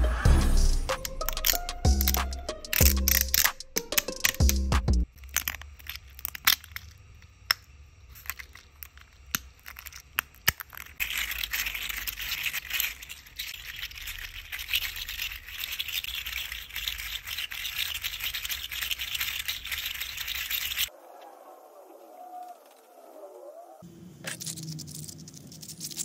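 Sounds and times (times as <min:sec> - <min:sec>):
plastic joints clicking: 0:00.9 - 0:06.9
crackling plastic rattle: 0:00.9 - 0:20.9, 0:24.2 - 0:26.0.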